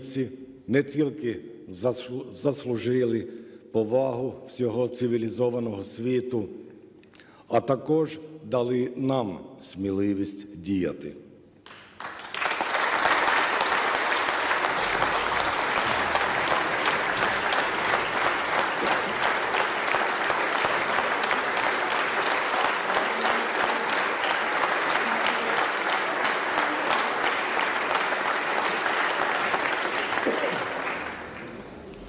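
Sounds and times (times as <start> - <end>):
large crowd applauding: 11.6 - 32.0.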